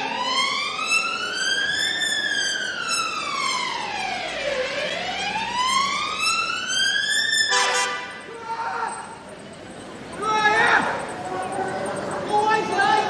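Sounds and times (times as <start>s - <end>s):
police siren wailing: 0.0s - 9.3s.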